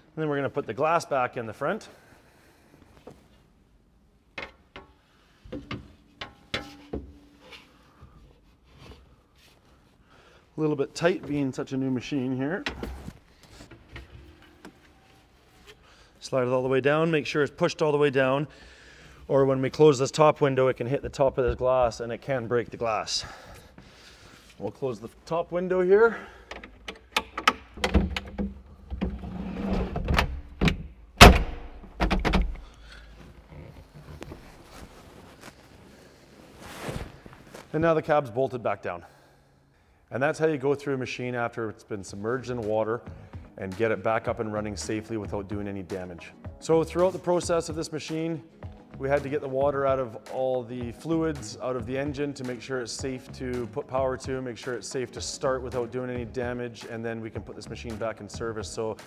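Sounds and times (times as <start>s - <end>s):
window sliding on rails: 28.9s - 30.4s.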